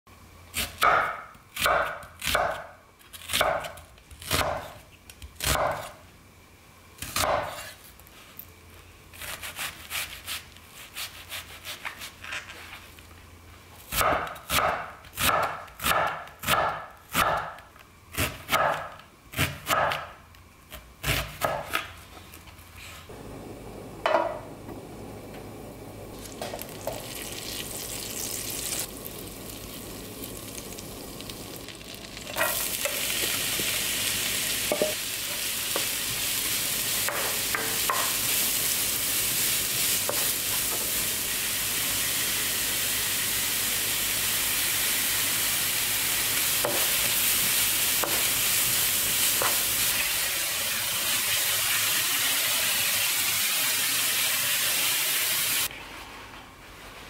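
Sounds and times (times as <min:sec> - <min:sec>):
onion frying sizzle: 0:23.1 - 0:55.7
butter sizzling in a frying pan: 0:26.2 - 0:55.7.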